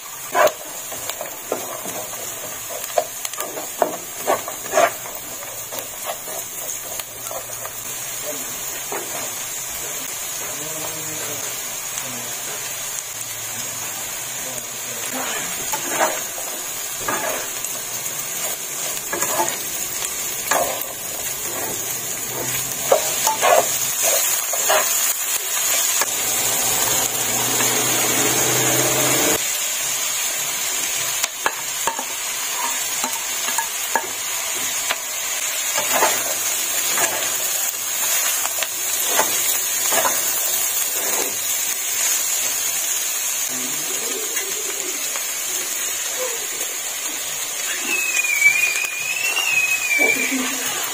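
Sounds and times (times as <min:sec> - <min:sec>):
food sizzling in a frying pan: 0:00.0 - 0:50.9
spatula scraping and tapping pan: 0:00.4 - 0:07.8, 0:19.0 - 0:19.6.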